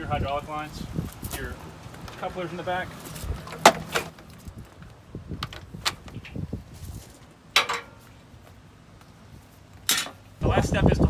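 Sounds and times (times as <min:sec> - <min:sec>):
hose couplers clicking and rattling: 0:07.5 - 0:08.0
metallic clunk: 0:07.5 - 0:08.0.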